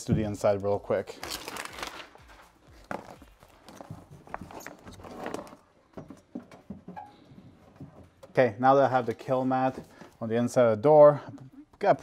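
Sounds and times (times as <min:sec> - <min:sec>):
gloved hands rustling: 0:01.1 - 0:08.3.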